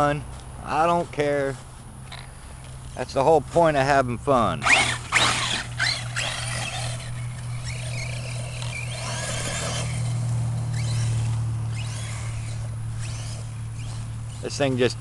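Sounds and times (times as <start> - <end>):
steady low hum: 0.0 - 15.0
electric motor whining: 4.6 - 15.0.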